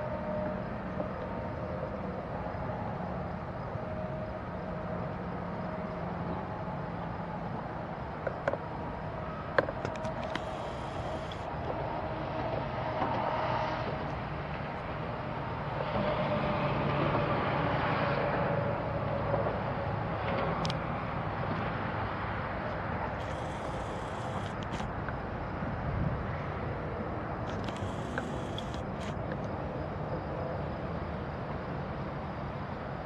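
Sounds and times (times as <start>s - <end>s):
short clicks: 27.5s - 29.2s.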